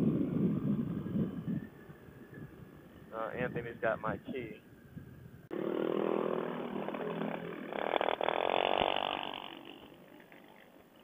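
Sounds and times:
scooter engine revving: 5.5s - 11.0s
scooter engines running: 5.5s - 11.0s.

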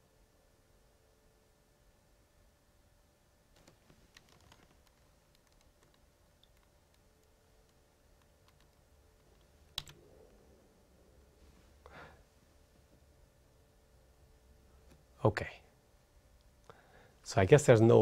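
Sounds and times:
faint clicks: 3.6s - 10.4s.

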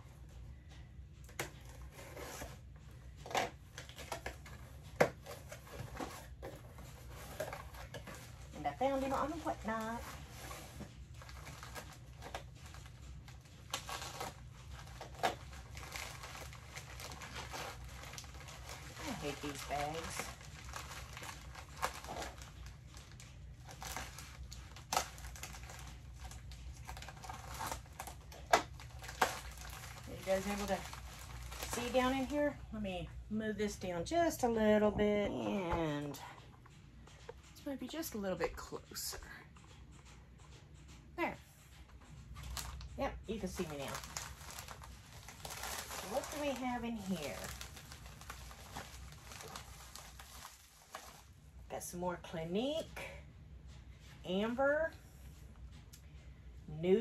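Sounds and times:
package rustling: 3.2s - 32.5s, 42.4s - 51.4s
plastic bag crinkling and tearing: 3.2s - 32.5s, 42.5s - 51.4s.

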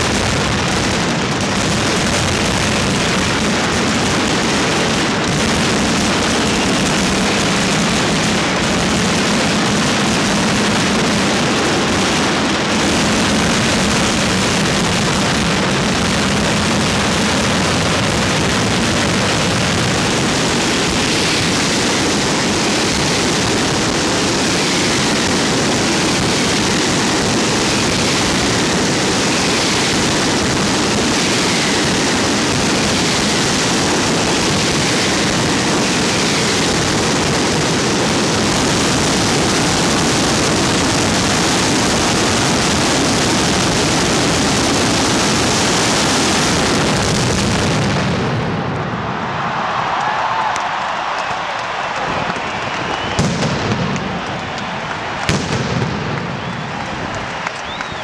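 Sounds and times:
firecracker barrage: 0.0s - 58.0s
falling whistling tones: 52.5s - 53.4s, 57.5s - 58.0s.

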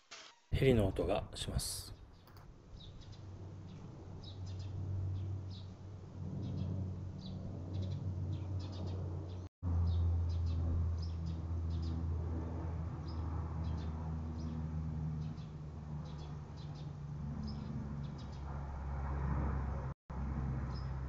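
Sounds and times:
helicopter drone overhead: 0.6s - 21.0s
small birds chirping: 1.4s - 12.0s, 13.0s - 18.5s, 20.7s - 21.0s.

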